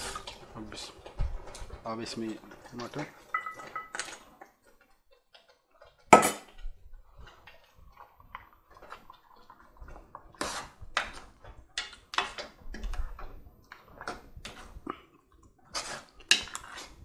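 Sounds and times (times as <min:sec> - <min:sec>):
wet squelch of sauce: 0:07.1 - 0:17.0
metal ladle scraping pot: 0:10.3 - 0:11.2, 0:15.7 - 0:17.0.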